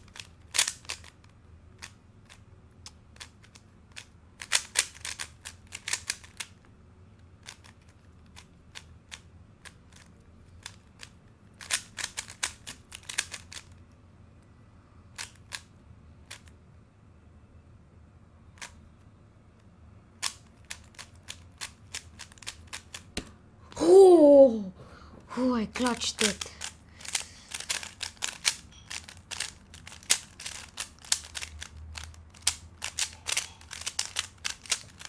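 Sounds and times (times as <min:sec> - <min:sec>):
plastic puzzle cube clicking: 0:00.0 - 0:06.6, 0:07.4 - 0:13.8, 0:15.1 - 0:16.5, 0:18.6 - 0:18.8, 0:20.2 - 0:23.2, 0:25.8 - 0:35.0.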